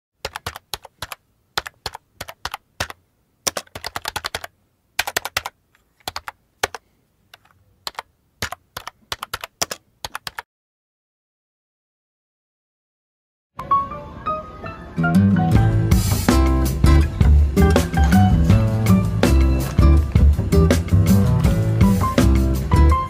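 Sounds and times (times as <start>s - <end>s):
keyboard key clicks: 0.2s - 10.4s.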